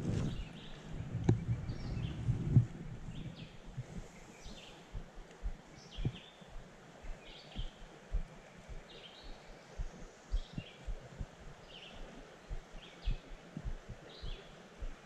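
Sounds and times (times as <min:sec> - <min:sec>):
low muffled thumps: 0:00.0 - 0:04.0, 0:05.0 - 0:06.2, 0:09.8 - 0:11.5, 0:12.5 - 0:15.0
bird chirping: 0:00.1 - 0:02.5, 0:03.1 - 0:04.9, 0:05.7 - 0:07.8, 0:08.6 - 0:11.0, 0:11.6 - 0:13.4, 0:14.1 - 0:14.6
river water hiss: 0:01.7 - 0:15.0.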